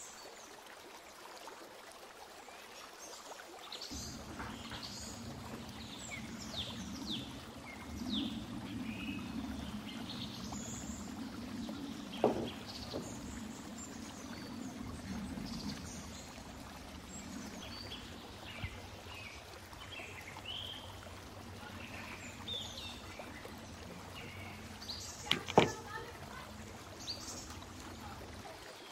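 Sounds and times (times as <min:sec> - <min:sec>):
low rushing like water: 0:00.0 - 0:28.9
birds chirping: 0:03.8 - 0:28.9
single knock: 0:12.2 - 0:13.0, 0:25.3 - 0:25.8.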